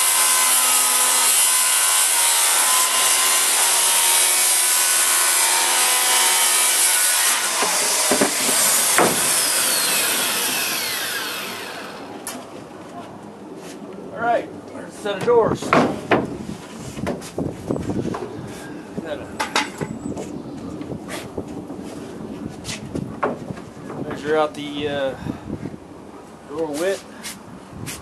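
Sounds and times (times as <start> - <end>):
saw blade winding down: 0.0 - 12.1
circular saw cutting wood: 0.0 - 12.4
sharp knocks: 7.5 - 9.4.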